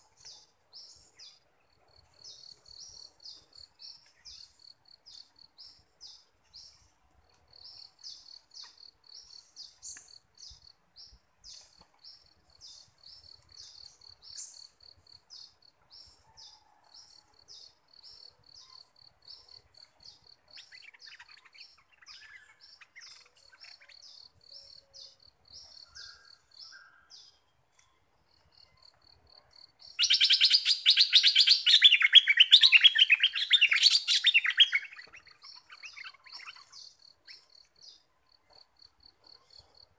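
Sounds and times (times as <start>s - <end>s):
insect chirping: 7.5s - 16.4s, 28.2s - 39.9s
bird chattering song: 18.1s - 27.4s, 29.8s - 38.0s.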